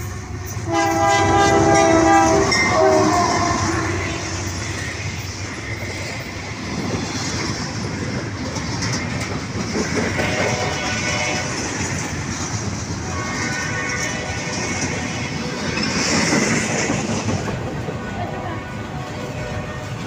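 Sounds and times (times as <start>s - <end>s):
locomotive air horn: 0.0s - 4.6s, 10.2s - 11.8s, 13.0s - 15.9s, 18.3s - 20.0s
train wheels running on rails: 0.0s - 20.0s.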